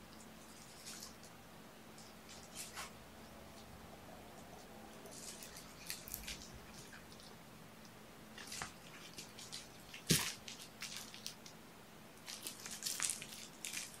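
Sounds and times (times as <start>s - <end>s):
kittens playing with toys: 4.5s - 7.3s.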